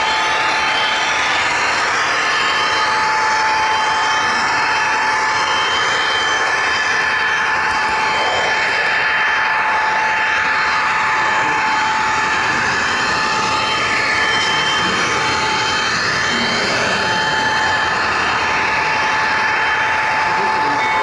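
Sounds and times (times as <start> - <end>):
high whine: 0.0 - 21.0.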